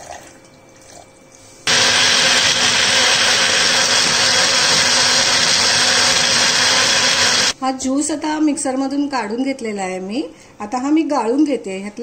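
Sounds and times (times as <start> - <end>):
mixer-grinder motor humming: 1.7 - 7.6.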